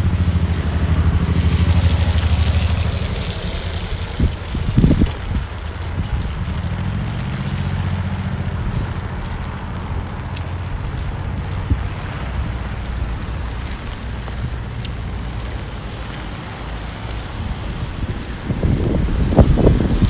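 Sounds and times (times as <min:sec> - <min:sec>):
motorcycle engine running: 0:00.0 - 0:14.7
wind rumbling on microphone: 0:00.0 - 0:20.0.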